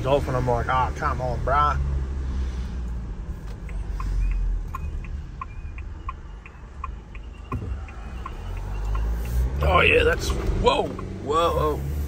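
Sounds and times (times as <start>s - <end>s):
diesel engine and tyres humming: 0.0s - 12.0s
turn signal ticking: 0.0s - 12.0s.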